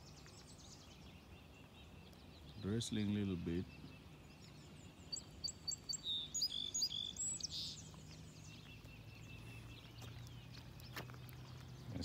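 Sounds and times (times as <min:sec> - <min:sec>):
songbird chirping: 0:00.0 - 0:12.0.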